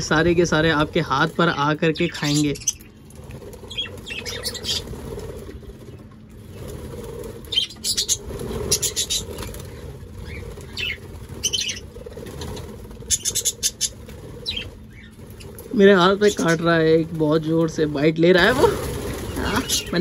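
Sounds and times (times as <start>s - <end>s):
birds fluttering wings: 0.0s - 20.0s.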